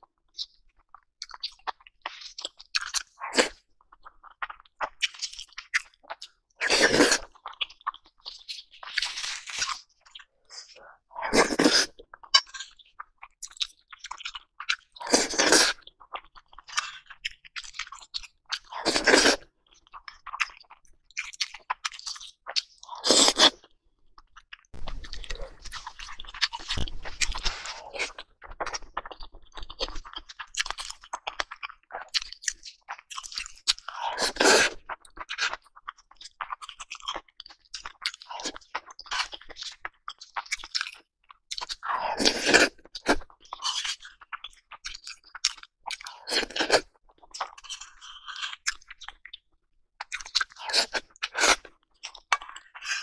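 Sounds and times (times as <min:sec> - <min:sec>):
close chewing of rice: 0:00.2 - 0:53.0.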